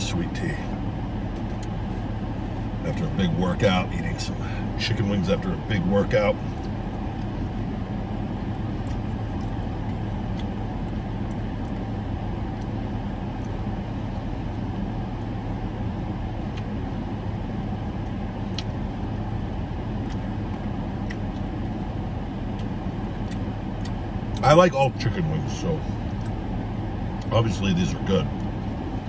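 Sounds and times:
car idling hum: 0:00.0 - 0:29.0
clicks of chewing: 0:08.4 - 0:11.9, 0:20.0 - 0:24.5.

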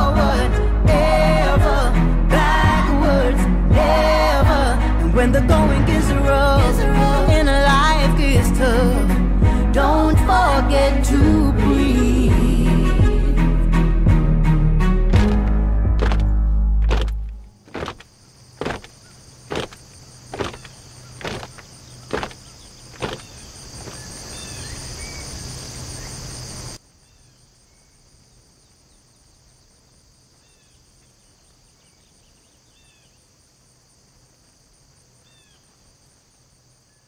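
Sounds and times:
footfalls on stubble: 0:15.2 - 0:24.1
crickets chirping: 0:16.9 - 0:37.0.

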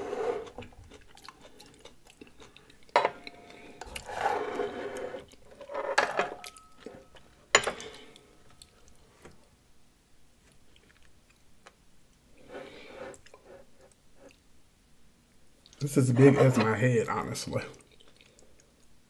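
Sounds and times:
ceramic bowl scraping on wood: 0:04.0 - 0:06.0, 0:16.0 - 0:16.8.

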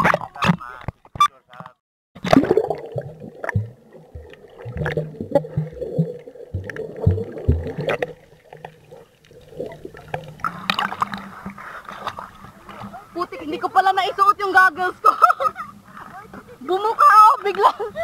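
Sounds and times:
low underwater thumps: 0:02.2 - 0:13.0.

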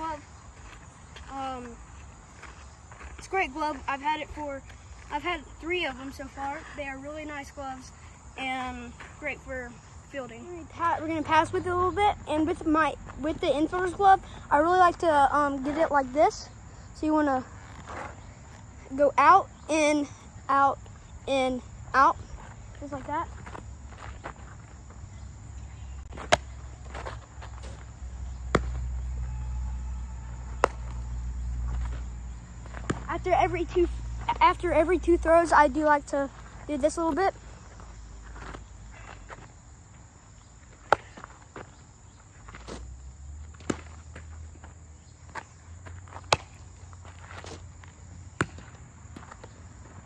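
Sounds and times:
footsteps on dirt: 0:00.0 - 0:06.9, 0:08.7 - 0:11.6, 0:17.4 - 0:19.6, 0:22.0 - 0:34.6, 0:36.2 - 0:50.0
baseball popping into glove: 0:26.1 - 0:27.0, 0:28.5 - 0:28.8, 0:30.5 - 0:31.1, 0:46.3 - 0:46.6.

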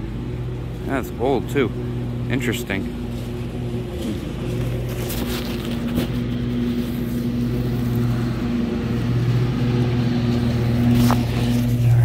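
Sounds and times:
engine humming: 0:00.0 - 0:12.0
glove brushing microphone: 0:04.0 - 0:08.1, 0:10.8 - 0:12.0.

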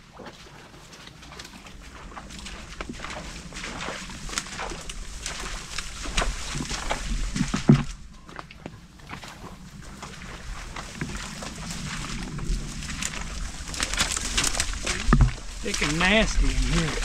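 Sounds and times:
footsteps through thick brush: 0:00.0 - 0:17.0
leaves rustling: 0:00.8 - 0:08.1, 0:09.3 - 0:17.0
twigs cracking: 0:10.8 - 0:17.0.

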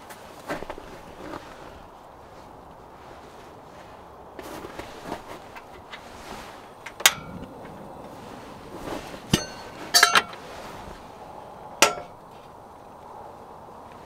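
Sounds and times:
metal objects knocking and clinking: 0:09.3 - 0:10.4, 0:11.8 - 0:12.2.

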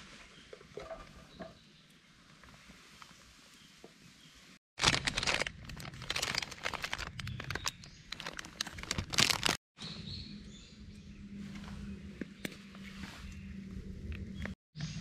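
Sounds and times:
plastic bag crinkling: 0:04.8 - 0:09.6.

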